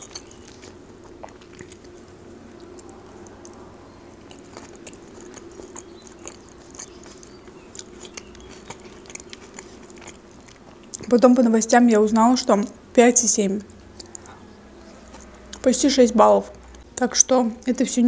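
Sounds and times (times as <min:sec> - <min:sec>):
chewing with crunches: 0:00.0 - 0:11.4, 0:13.6 - 0:15.8, 0:16.5 - 0:16.9
faint low hum: 0:00.0 - 0:18.0
wet mouth clicks: 0:14.0 - 0:14.4.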